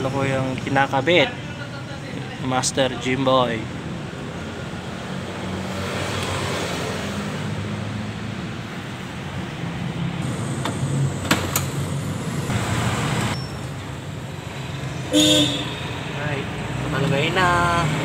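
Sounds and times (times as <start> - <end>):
passing road traffic: 0.0 - 18.0.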